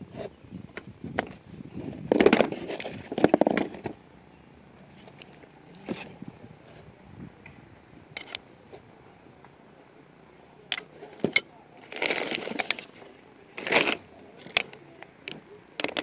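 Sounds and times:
scraping and rustling: 0.0s - 4.0s, 4.8s - 7.0s, 10.8s - 16.0s
metal tools clinking in a box: 8.2s - 8.4s, 10.7s - 16.0s.

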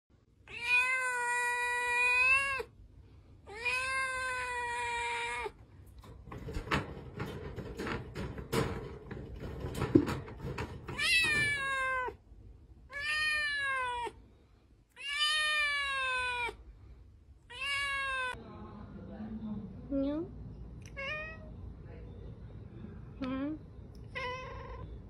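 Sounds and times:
kitten meowing: 0.5s - 2.7s, 12.9s - 14.2s
wire cage rattling: 5.9s - 12.1s.

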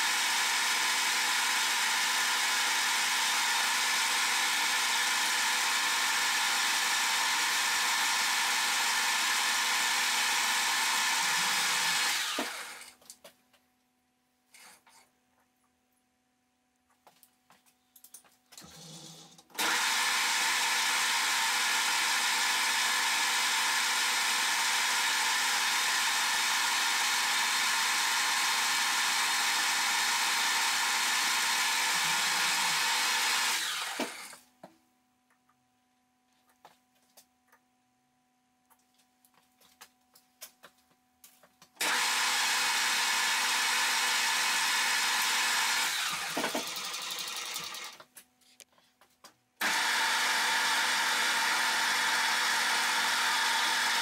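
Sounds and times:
lathe running: 19.6s - 34.4s, 41.8s - 48.0s, 49.6s - 54.0s.

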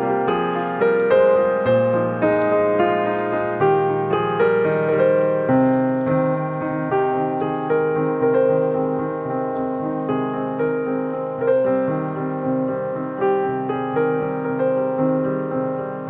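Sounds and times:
slow gentle piano melody: 0.0s - 16.0s.

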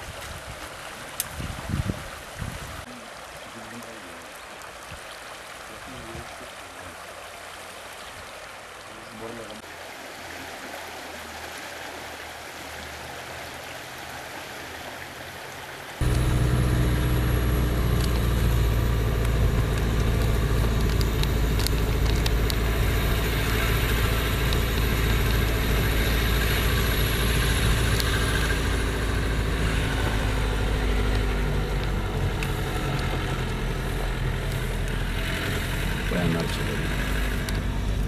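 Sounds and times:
car engine and road noise: 14.0s - 38.0s.

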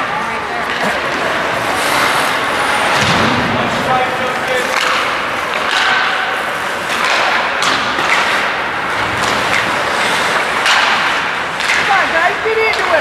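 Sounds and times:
skating on ice: 0.0s - 13.0s
rink noise: 0.6s - 13.0s
sharp knocks of sticks and puck: 4.4s - 13.0s.

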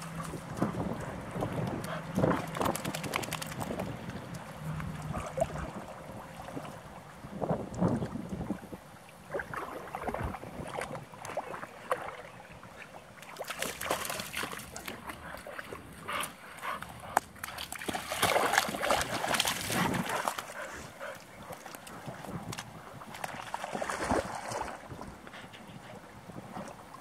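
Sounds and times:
splashing in shallow water: 0.0s - 27.0s
puppy footsteps on wet sand: 13.2s - 24.3s.

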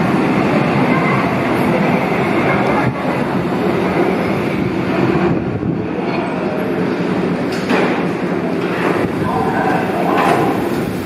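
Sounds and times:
subway train rumbling: 0.0s - 11.0s.

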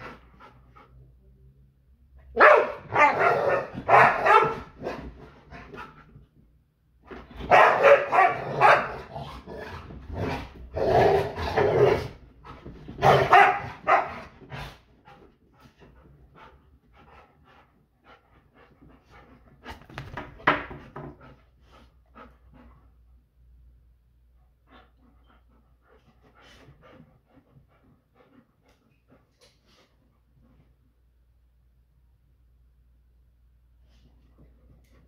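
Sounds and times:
dogs barking: 2.4s - 4.7s, 7.5s - 9.0s, 13.0s - 14.3s.

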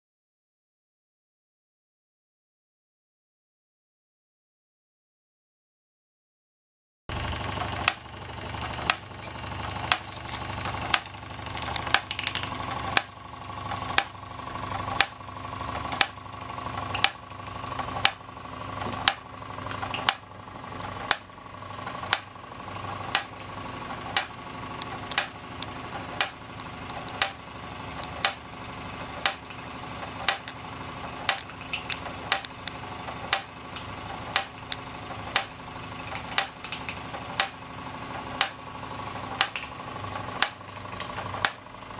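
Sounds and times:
steam engine running: 7.1s - 41.9s
sharp click: 7.8s - 8.1s, 8.9s - 13.1s, 14.0s - 14.2s, 15.0s - 15.2s, 16.0s - 16.2s, 16.9s - 17.2s, 18.0s - 18.2s, 18.9s - 20.2s, 21.0s - 21.3s, 22.1s - 22.3s, 23.1s - 23.5s, 24.1s - 27.4s, 28.0s - 28.4s, 29.2s - 29.6s, 30.2s - 30.6s, 31.2s - 37.6s, 38.4s - 38.6s, 39.4s - 39.8s, 40.4s - 41.6s.

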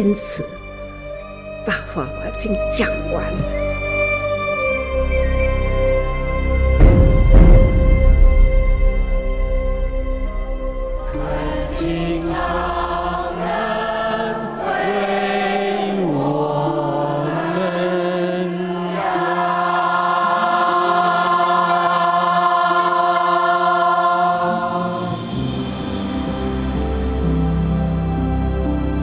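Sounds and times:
choir singing a slow hymn: 2.4s - 29.0s.

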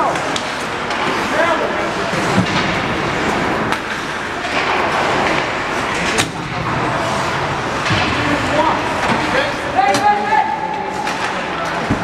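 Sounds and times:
skating and arena noise: 0.0s - 12.0s.

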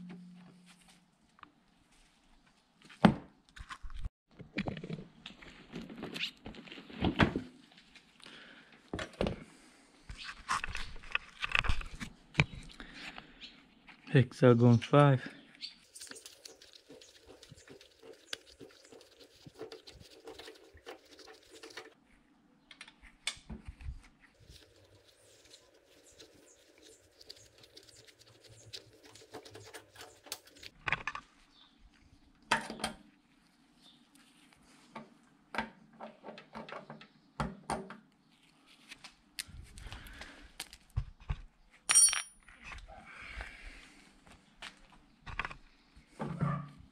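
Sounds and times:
glove rustling: 15.8s - 22.0s, 23.7s - 30.8s.

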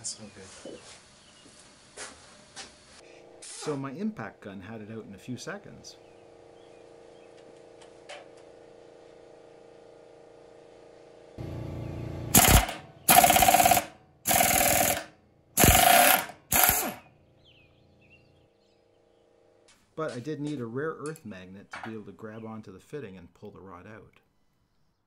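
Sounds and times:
pneumatic impact wrench hammering: 12.3s - 17.1s.

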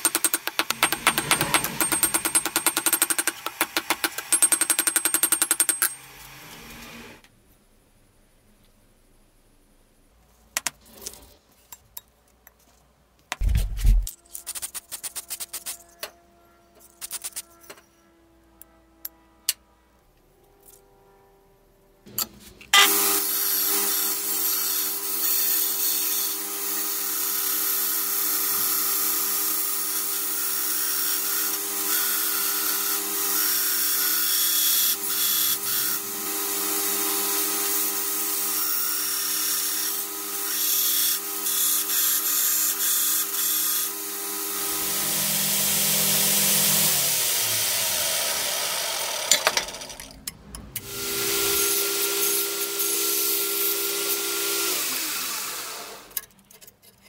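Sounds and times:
tool grinding on metal: 0.0s - 6.2s, 22.8s - 50.0s
power tool motor hum: 41.1s - 50.0s.

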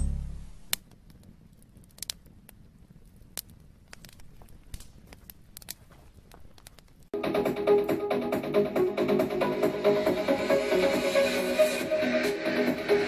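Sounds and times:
faint crackles and clicks: 0.6s - 7.2s.

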